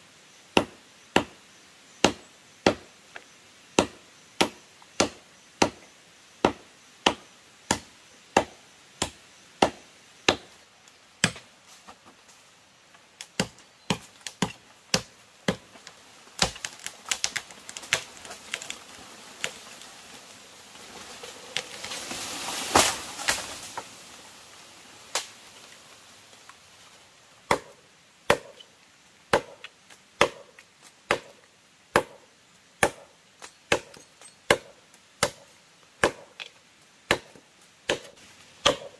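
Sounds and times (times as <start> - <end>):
sharp crack: 21.6 - 23.9
blade chopping into wood: 29.3 - 30.5, 36.0 - 36.5, 37.1 - 38.9.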